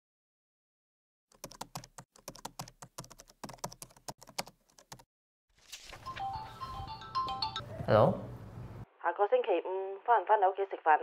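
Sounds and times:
typing on laptop keyboard: 1.3s - 5.1s.

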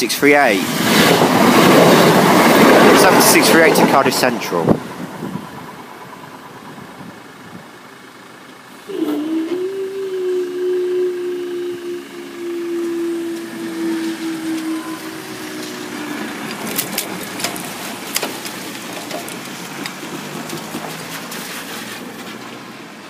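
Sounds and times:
traffic on a wet road: 0.0s - 23.0s
barrier motor humming: 0.5s - 22.1s.

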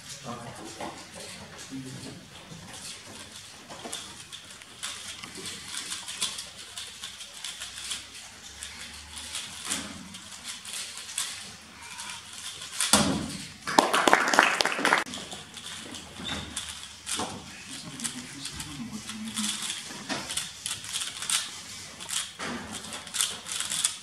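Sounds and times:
audience clapping: 13.6s - 15.1s.

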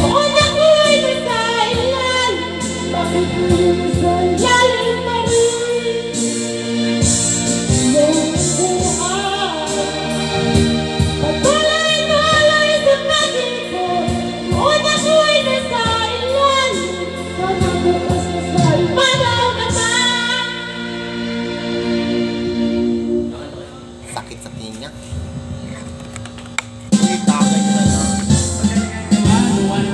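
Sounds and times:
woman singing into microphone: 0.0s - 21.2s
music backing track: 0.0s - 24.7s, 26.4s - 29.9s.

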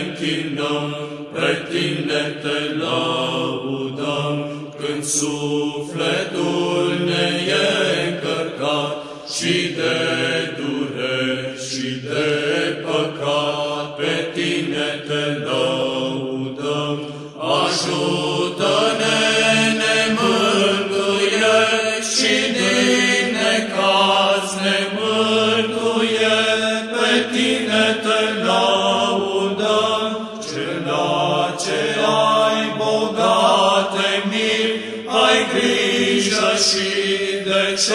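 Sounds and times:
voices singing slow chant: 0.0s - 37.9s.

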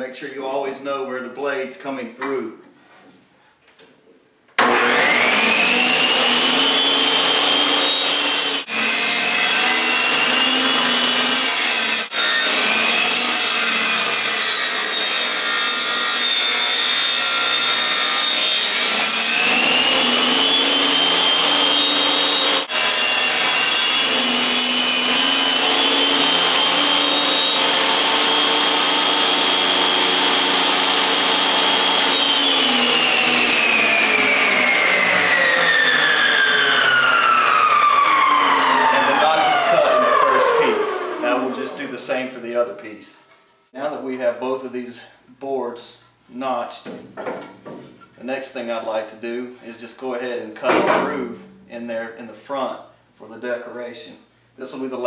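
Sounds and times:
saw blade cutting wood: 4.6s - 42.3s
table saw whine: 4.6s - 42.3s.

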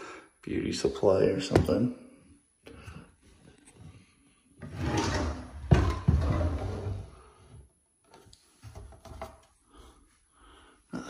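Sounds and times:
wooden drawer sliding: 4.6s - 7.2s.

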